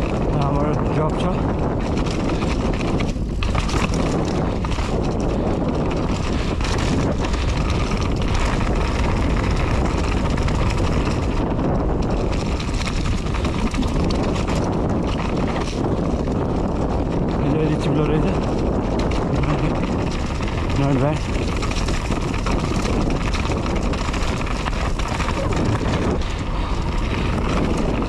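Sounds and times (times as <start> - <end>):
bike tyres and frame rattling: 0.0 - 28.0
wind buffeting microphone: 0.0 - 28.0.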